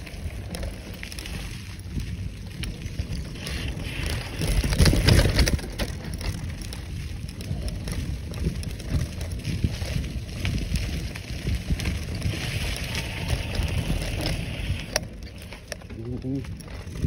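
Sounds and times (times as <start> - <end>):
bicycle frame rattle: 0.0 - 17.0
bicycle tyre rumble: 0.0 - 17.0
wind buffeting microphone: 0.0 - 17.0.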